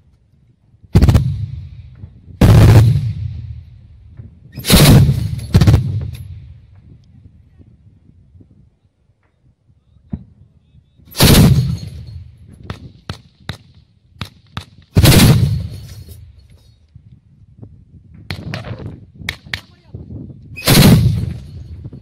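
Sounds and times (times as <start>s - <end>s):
autocannon firing bursts: 1.0s - 1.7s, 2.4s - 3.4s, 4.6s - 6.3s, 11.2s - 12.1s, 14.6s - 15.9s, 20.6s - 21.6s.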